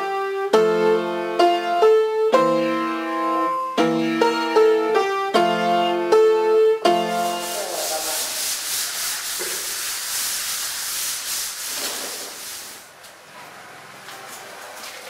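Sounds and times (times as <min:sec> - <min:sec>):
hand sanding wooden panels: 0:07.1 - 0:12.9.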